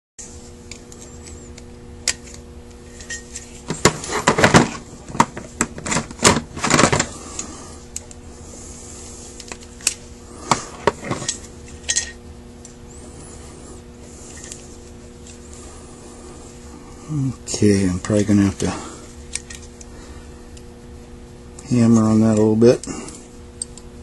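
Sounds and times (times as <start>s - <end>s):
metal parts clicking and clinking: 11.0s - 12.2s.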